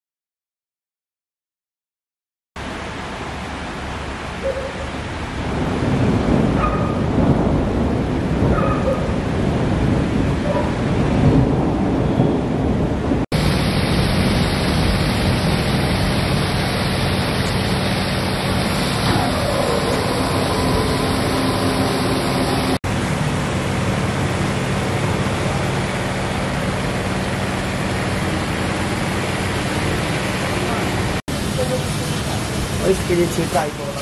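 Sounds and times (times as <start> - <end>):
light rain: 2.6 - 34.0
wind: 2.6 - 34.0.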